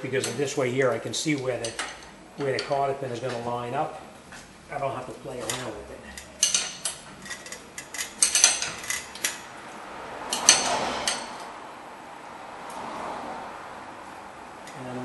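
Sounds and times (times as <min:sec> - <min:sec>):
wrench clinking on metal nut: 0:05.4 - 0:09.4
metal clank: 0:06.3 - 0:09.5, 0:10.3 - 0:11.5
short metal scrape: 0:10.4 - 0:11.5.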